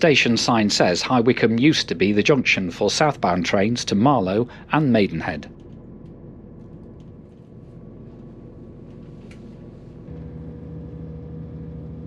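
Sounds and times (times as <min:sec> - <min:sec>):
train diesel engine humming: 0:09.5 - 0:12.0.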